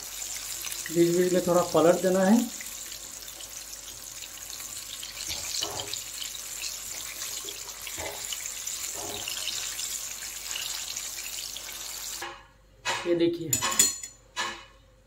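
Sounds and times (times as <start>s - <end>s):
chicken sizzling in hot oil: 0.0s - 12.4s
fork knocking metal pan: 12.2s - 14.7s.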